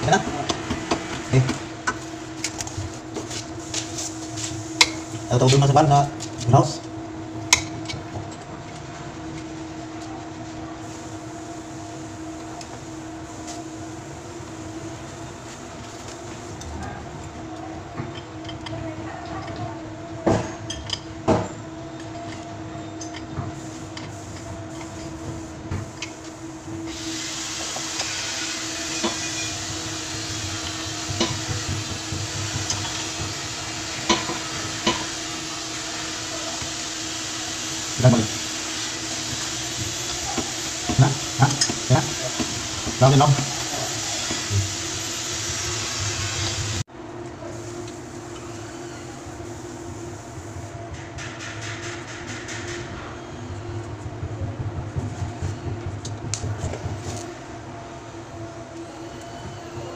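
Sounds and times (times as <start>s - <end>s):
steady hum: 19.8s - 59.9s.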